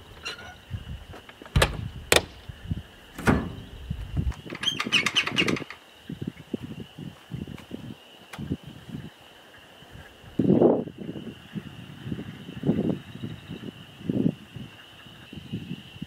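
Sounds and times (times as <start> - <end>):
metal door knocks and clanks: 1.5 - 2.3, 3.2 - 3.8
rattling clicks: 4.4 - 5.8.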